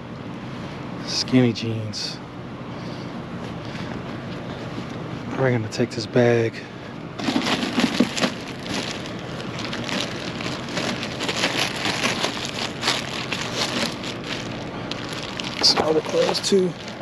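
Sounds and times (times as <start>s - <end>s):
plastic bag crinkling: 7.2s - 17.0s.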